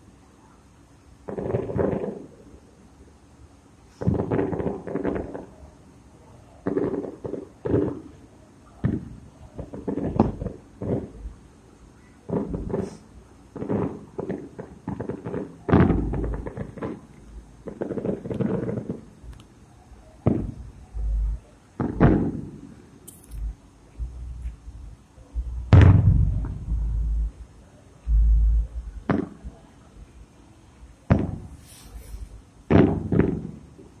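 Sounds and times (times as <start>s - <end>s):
fireworks bangs and pops: 1.2s - 2.4s, 3.9s - 5.6s, 6.6s - 8.2s, 8.8s - 11.3s, 12.3s - 19.4s, 20.2s - 24.6s, 25.4s - 27.3s, 29.0s - 29.6s, 31.0s - 34.0s.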